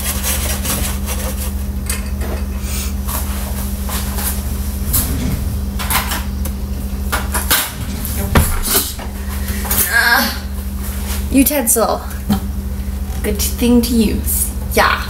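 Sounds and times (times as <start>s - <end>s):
steady low hum: 0.0s - 15.0s
kitchen things knocking: 7.6s - 9.1s
cupboard door: 7.6s - 9.2s.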